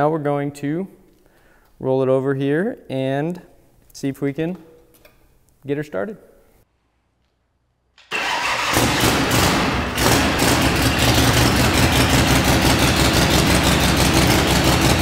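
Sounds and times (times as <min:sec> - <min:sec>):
electric starter cranking: 0:08.0 - 0:15.0
motorcycle engine running: 0:08.7 - 0:15.0.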